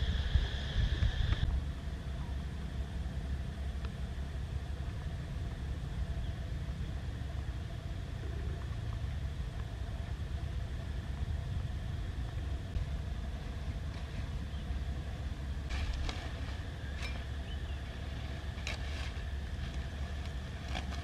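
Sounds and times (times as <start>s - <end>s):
faint steady tones: 0.0s - 21.0s
low outdoor rumble: 0.0s - 21.0s
knife cutting stems: 18.4s - 21.0s.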